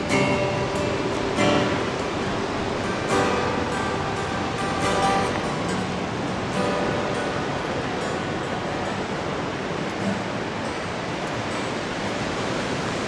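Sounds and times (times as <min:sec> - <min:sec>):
acoustic guitar strummed: 0:00.0 - 0:13.0
surf washing: 0:00.0 - 0:13.0.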